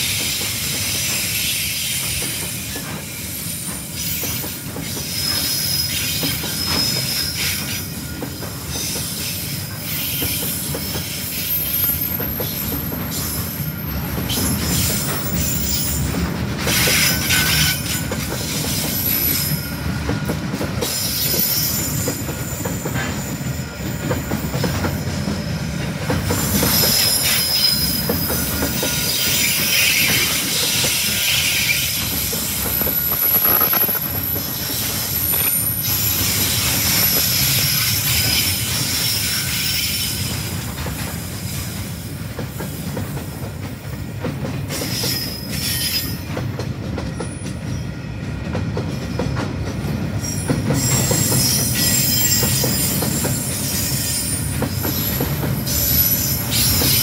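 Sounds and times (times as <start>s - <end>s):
freight train wheels rumbling: 0.0s - 57.0s
high wheel squeal: 0.5s - 16.0s, 16.7s - 19.9s, 26.3s - 40.4s, 50.2s - 57.0s.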